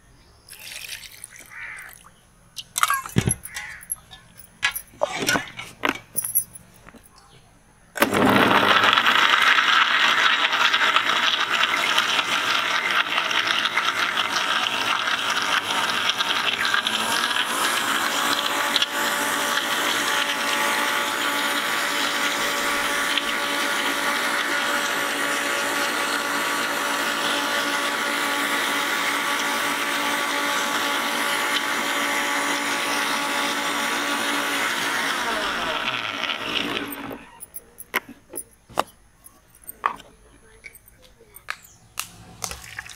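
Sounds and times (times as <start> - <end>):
electric blender running: 8.0 - 37.6.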